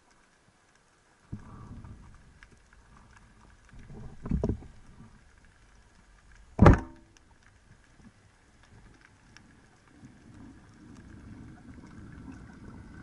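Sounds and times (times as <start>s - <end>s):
low underwater rumbles: 0.0s - 13.0s
speargun thunk underwater: 6.6s - 7.1s.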